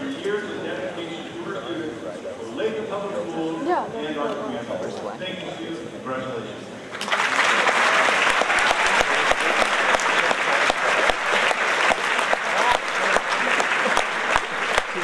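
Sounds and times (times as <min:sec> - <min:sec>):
audience applauding: 0:06.9 - 0:15.0.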